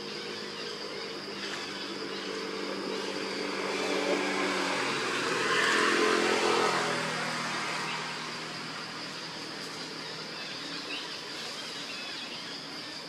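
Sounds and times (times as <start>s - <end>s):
vehicle engine passing by: 1.4s - 10.6s.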